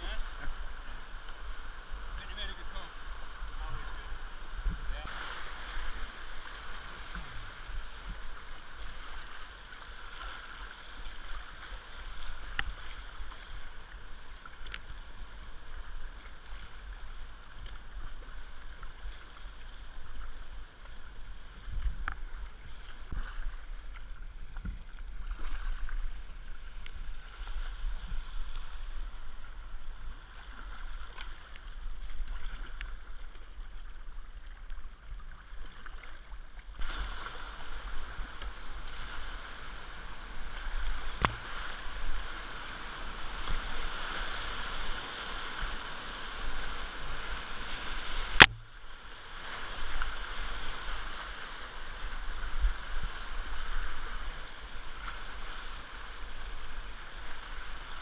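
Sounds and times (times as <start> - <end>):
river water rushing: 0.0 - 21.6, 35.9 - 58.0
paddle strokes in water: 0.0 - 58.0.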